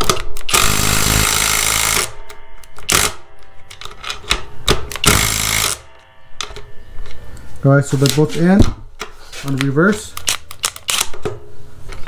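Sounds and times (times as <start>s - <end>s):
impact driver hammering screw into wood: 0.5s - 2.1s, 5.0s - 5.8s.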